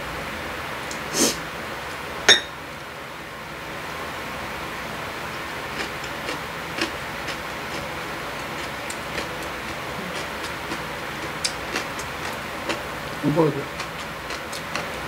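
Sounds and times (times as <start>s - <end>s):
background hiss: 1.0s - 1.5s
wet chewing mouth clicks: 5.8s - 12.8s, 13.7s - 15.0s.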